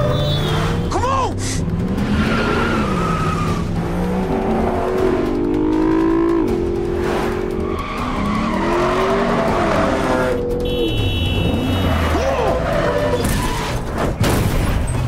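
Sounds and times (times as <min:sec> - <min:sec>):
tyres skidding: 0:00.0 - 0:10.6
car engines revving hard: 0:00.0 - 0:10.7, 0:11.4 - 0:14.2.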